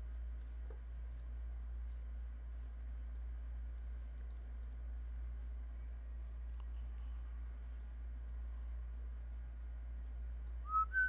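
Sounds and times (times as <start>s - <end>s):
steady low hum: 0.0s - 11.0s
mouse and keyboard clicks: 0.1s - 4.8s.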